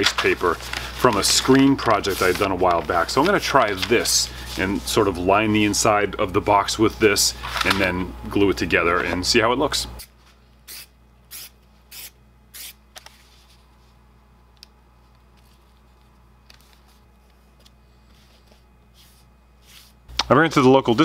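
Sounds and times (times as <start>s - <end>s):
aerosol can spraying: 10.7s - 12.8s.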